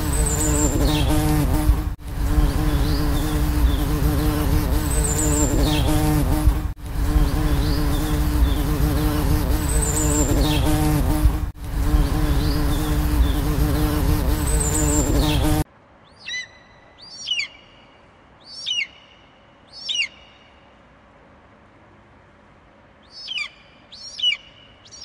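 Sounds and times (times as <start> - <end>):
faint birds chirping: 0.0 - 1.5, 2.4 - 6.3, 7.2 - 11.1, 11.8 - 20.9
bumblebees buzzing: 0.0 - 15.7.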